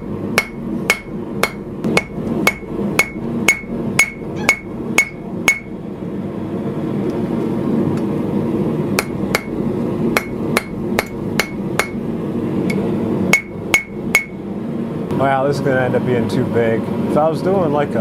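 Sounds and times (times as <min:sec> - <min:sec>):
hammer striking steel on anvil: 0:00.4 - 0:05.7, 0:09.0 - 0:12.0, 0:12.7 - 0:14.4.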